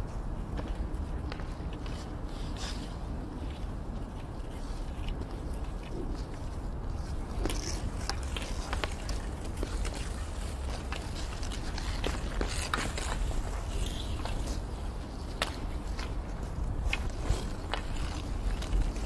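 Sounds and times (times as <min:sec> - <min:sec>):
hockey sticks clacking: 0:07.4 - 0:14.4.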